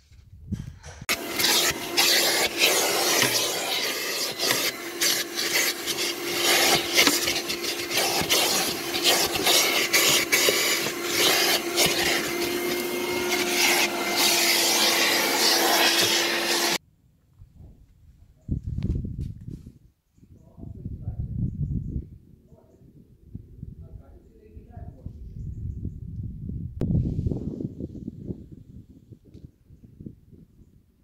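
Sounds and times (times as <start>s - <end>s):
handheld vacuum cleaner motor: 1.1s - 16.8s
vacuum nozzle scraping carpet: 1.1s - 16.8s.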